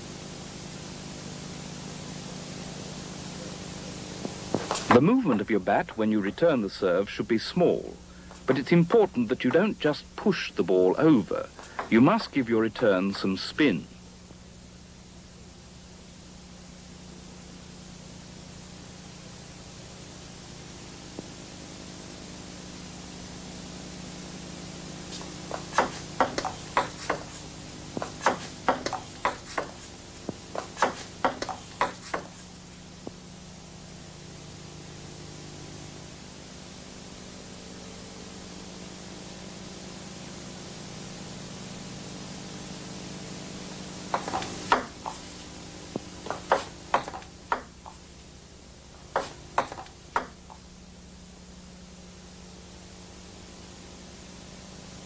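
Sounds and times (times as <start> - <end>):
steady hiss: 0.0 - 55.0
table tennis ball ticking: 25.8 - 27.3, 28.0 - 29.7, 30.8 - 32.3, 49.2 - 50.5.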